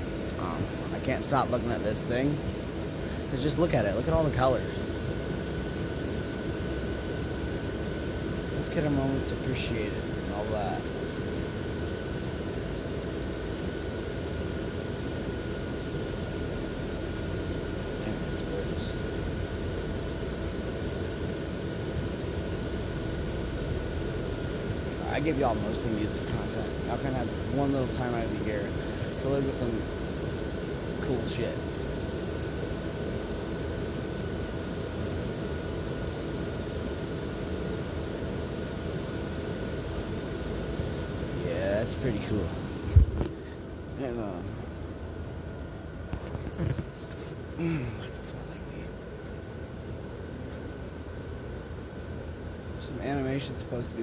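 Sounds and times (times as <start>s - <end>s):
blower fans whirring: 0.0s - 54.0s
faint high whine: 0.0s - 54.0s
faint steady hum: 0.0s - 54.0s.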